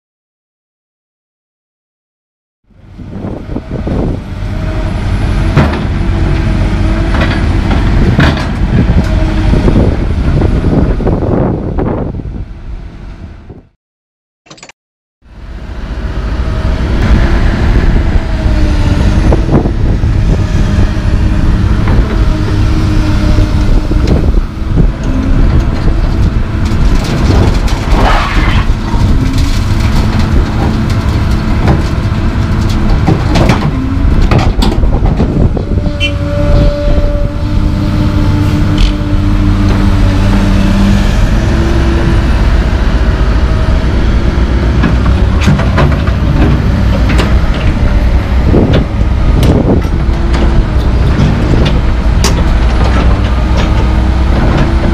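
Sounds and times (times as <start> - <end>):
diesel engine under load: 2.7 - 13.8, 14.5 - 54.9
hydraulic whine: 15.3 - 30.5, 33.7 - 54.9.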